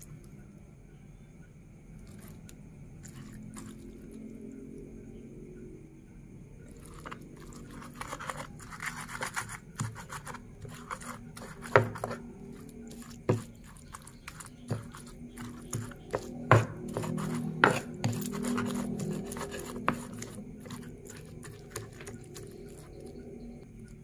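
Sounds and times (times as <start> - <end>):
pestle squashing and scraping: 6.8 - 23.4
stone knocks: 15.7 - 18.2.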